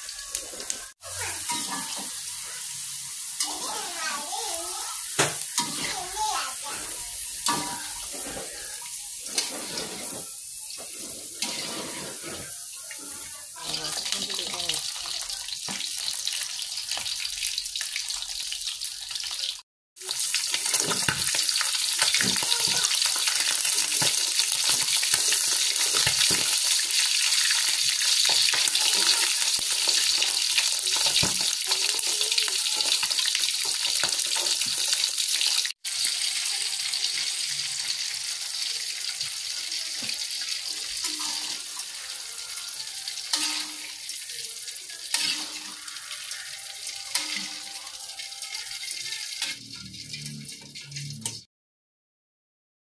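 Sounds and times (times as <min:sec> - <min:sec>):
hot oil sizzling in a wok: 0:00.0 - 0:51.5
metal spatula scraping pan: 0:01.4 - 0:02.6, 0:06.7 - 0:13.3, 0:40.9 - 0:42.0, 0:45.1 - 0:48.5.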